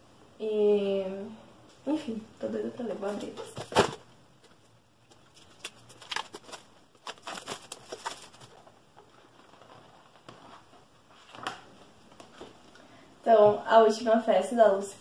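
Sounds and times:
handling rustles: 2.9 - 12.6
plastic shrink-wrap tearing: 5.4 - 8.6.

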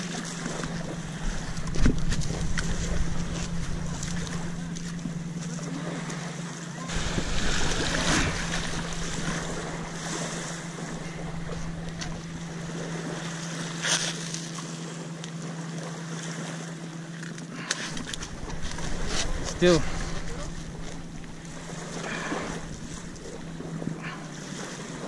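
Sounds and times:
steady low hum: 0.0 - 15.6, 16.8 - 25.0
small waves lapping at shore: 0.0 - 25.0
wind buffeting microphone: 0.5 - 5.4, 6.9 - 13.2, 17.9 - 24.4.

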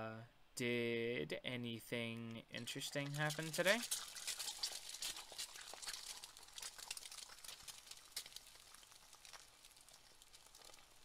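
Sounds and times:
faint frying in a pan: 2.5 - 11.0.

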